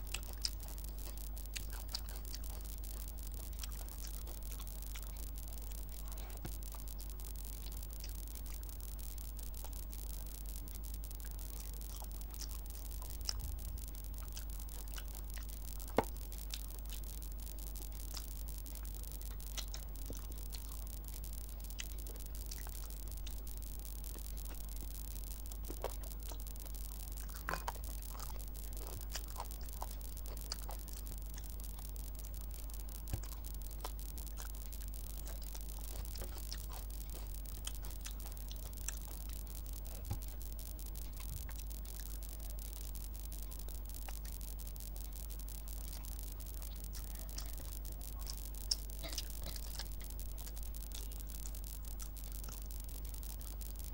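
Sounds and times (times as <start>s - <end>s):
low hum and hiss: 0.0s - 53.9s
wet mouth clicks chewing: 0.0s - 53.9s.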